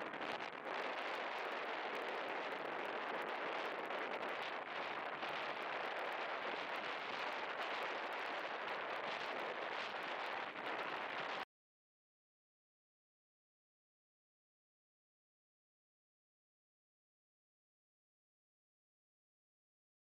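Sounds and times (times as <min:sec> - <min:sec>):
wind: 0:00.0 - 0:11.5.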